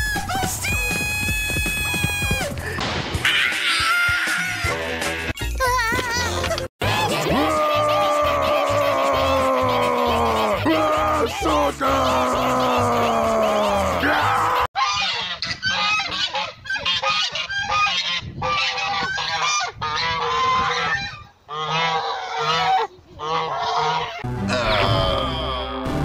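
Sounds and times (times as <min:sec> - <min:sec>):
geese honking: 0:11.6 - 0:24.9.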